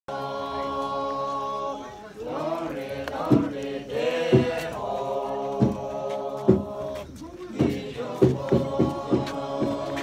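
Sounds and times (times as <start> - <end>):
group chanting held notes: 0.1 - 10.0
heavy thumps: 5.5 - 10.0.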